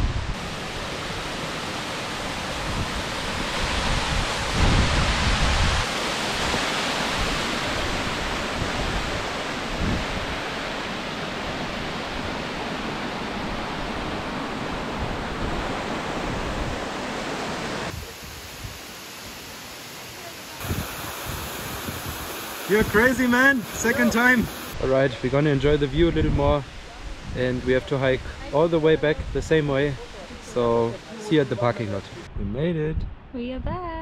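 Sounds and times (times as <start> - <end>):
rushing wind: 0.0 - 19.5, 20.6 - 34.0
wind buffeting microphone: 2.4 - 17.0, 20.6 - 23.1.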